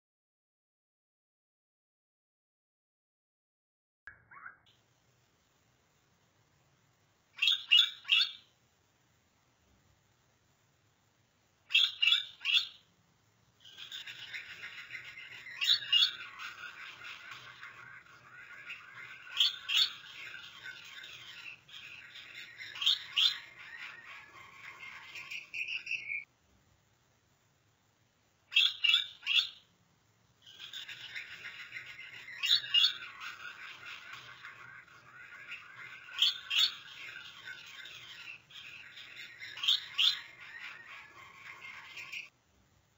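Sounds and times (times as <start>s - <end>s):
finches chirping: 7.3s - 8.5s, 11.7s - 12.9s, 13.6s - 26.3s, 28.5s - 29.7s, 30.4s - 42.3s
finch warbling song: 13.6s - 26.2s, 28.5s - 29.7s, 30.4s - 42.3s.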